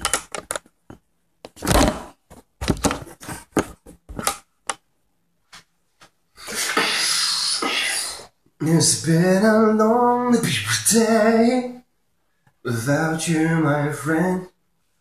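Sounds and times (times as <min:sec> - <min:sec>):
person beatboxing: 0:06.4 - 0:08.3.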